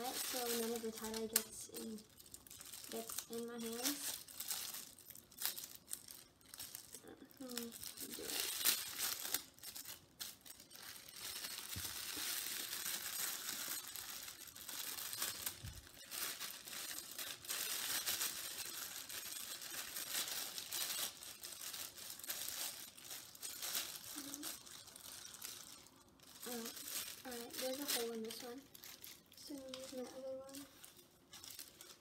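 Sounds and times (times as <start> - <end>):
plastic gloves crinkling: 0.0 - 32.0.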